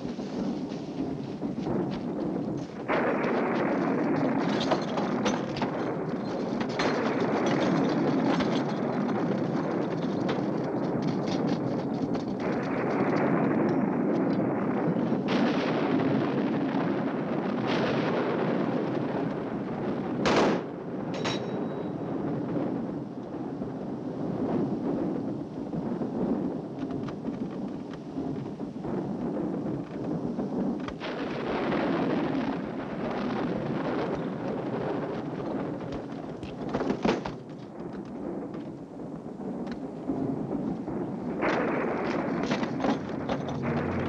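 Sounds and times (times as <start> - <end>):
thunder crash: 0.0 - 44.0
thunder rumbling and crackling: 0.0 - 44.0.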